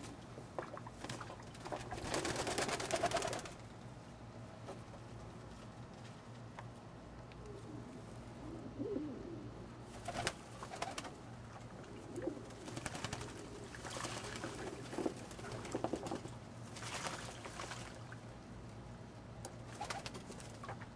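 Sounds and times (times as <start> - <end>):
wing flicks: 0.9 - 3.7, 9.9 - 11.2, 12.2 - 18.0, 19.7 - 20.8
pigeons cooing: 7.4 - 16.4
water splashes: 13.7 - 18.2.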